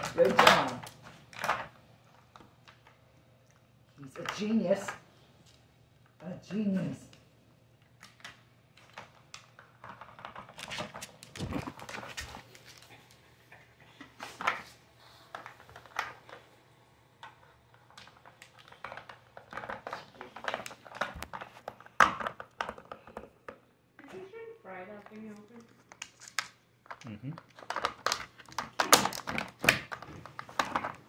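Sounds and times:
plastic puzzle pieces clicking: 0:25.6 - 0:31.0.

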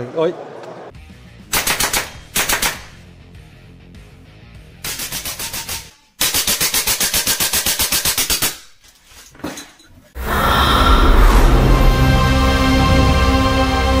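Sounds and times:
music: 0:00.9 - 0:05.9, 0:10.3 - 0:14.0
air rifle firing rapid bursts: 0:01.5 - 0:03.0, 0:04.8 - 0:08.6.

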